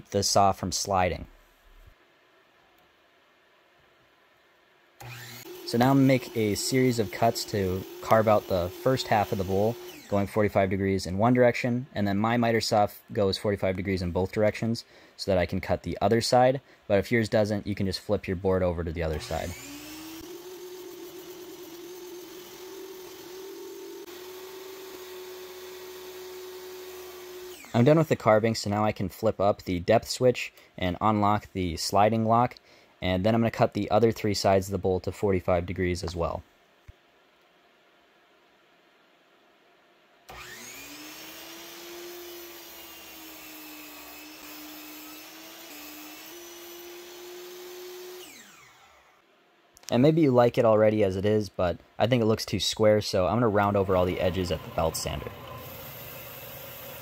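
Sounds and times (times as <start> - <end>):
miter saw running: 5.0 - 10.4, 19.1 - 27.8, 40.3 - 49.1, 53.6 - 57.0.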